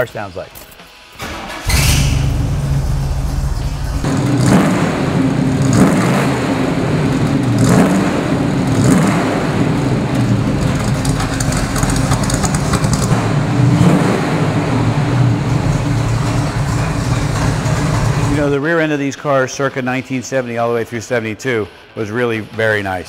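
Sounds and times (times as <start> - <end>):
car engine idling: 1.2 - 18.4
engine revving: 1.2 - 18.4.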